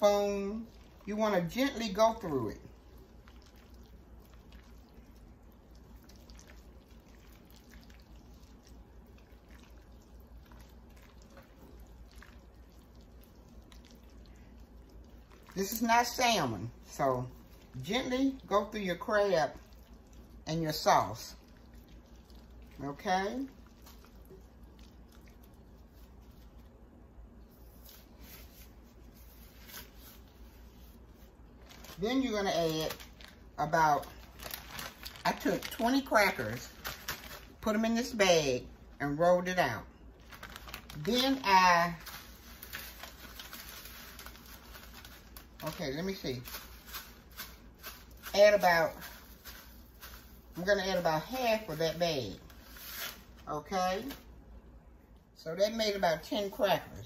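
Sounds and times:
wet squishing: 0.0s - 53.4s
gloved hands mixing food in glass bowl: 0.0s - 54.6s
low steady hum: 0.0s - 57.0s
glove rustle: 27.5s - 33.4s.

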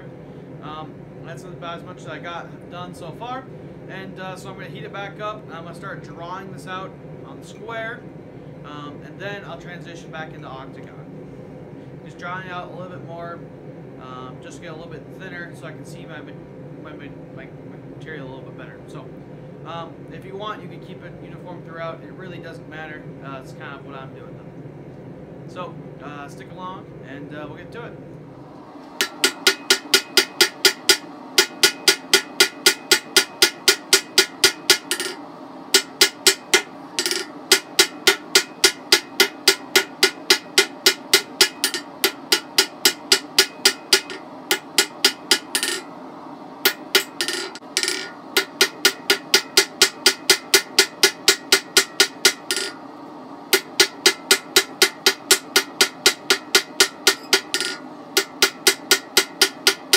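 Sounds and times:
anvil ringing: 29.0s - 45.9s, 46.6s - 52.8s, 53.5s - 59.9s
hammer striking metal on anvil: 29.0s - 45.9s, 46.6s - 52.8s, 53.5s - 59.9s.

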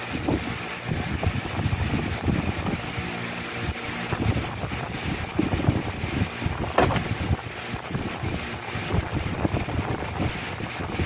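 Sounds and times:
bumps and knocks of box: 6.6s - 7.2s.

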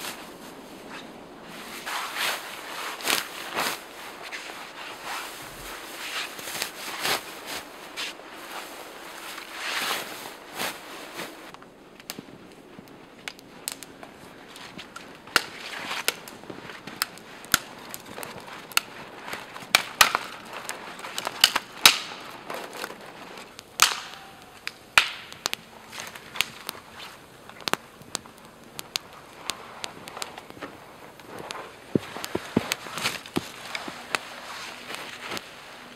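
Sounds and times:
campfire crackling and popping: 0.0s - 35.9s
sharp wood snaps: 11.5s - 35.5s.

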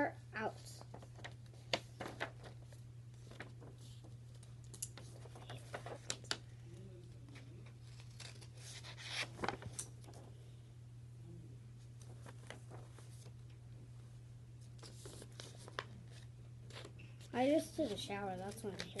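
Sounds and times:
paper rustling: 0.8s - 6.5s, 7.3s - 10.3s, 12.0s - 13.5s, 14.6s - 19.0s.

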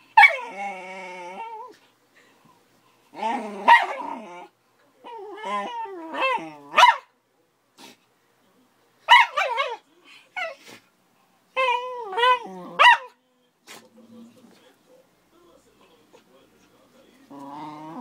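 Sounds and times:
dogs barking and growling: 0.0s - 1.8s, 3.1s - 7.1s, 9.1s - 9.8s, 11.6s - 13.9s, 17.2s - 18.0s.

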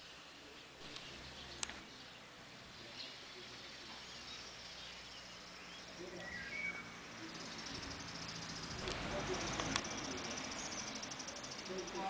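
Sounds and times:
bird chirps: 0.0s - 12.0s
click: 0.9s - 1.8s
pulsing insect trill: 4.6s - 12.0s.

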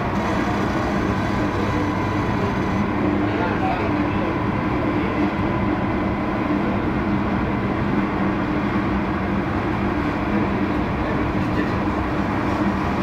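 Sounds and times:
heavy machine hum and rumble: 0.0s - 13.0s.

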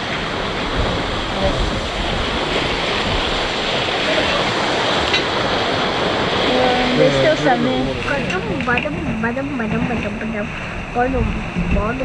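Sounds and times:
wind and sea water rushing: 0.0s - 12.0s
wind buffeting microphone: 0.0s - 12.0s.

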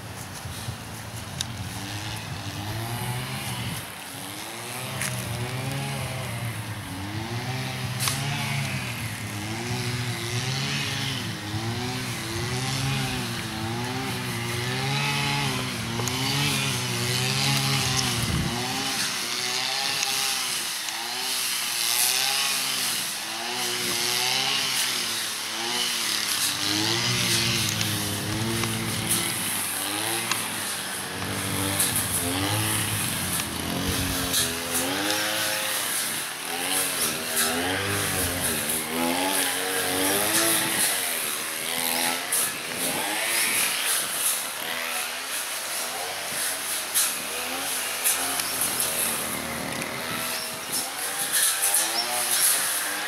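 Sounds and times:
grass cutter engine revving: 0.0s - 53.0s.

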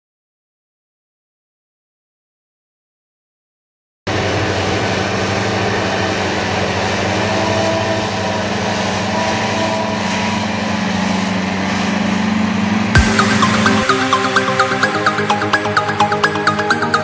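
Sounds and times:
tractor and mower running: 4.1s - 17.0s.

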